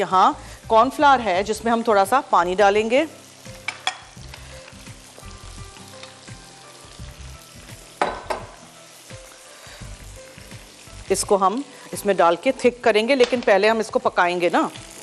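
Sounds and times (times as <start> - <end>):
chicken sizzling in oil: 0.0 - 15.0
knock: 8.0 - 8.5.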